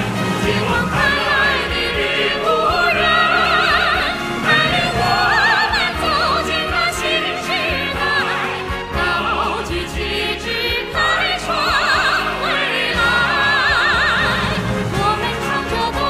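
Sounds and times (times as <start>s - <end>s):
orchestral accompaniment: 0.0s - 16.0s.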